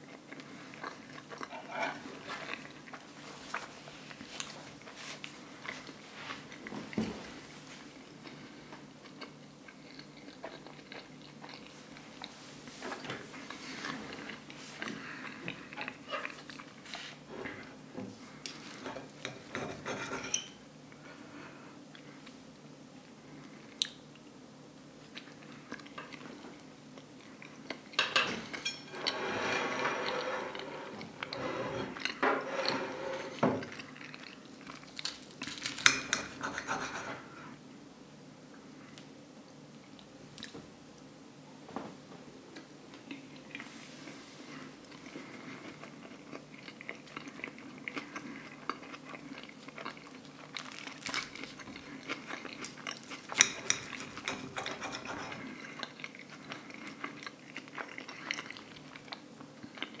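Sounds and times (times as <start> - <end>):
knife and fork scraping a plate: 1.6 - 2.0, 19.2 - 20.6, 28.0 - 33.4, 35.8 - 37.4, 53.3 - 55.4.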